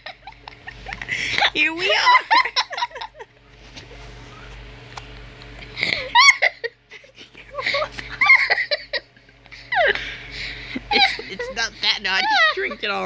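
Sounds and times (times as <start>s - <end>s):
person giggling and laughing: 0.0s - 3.3s, 5.7s - 13.0s
low hum: 0.0s - 13.0s.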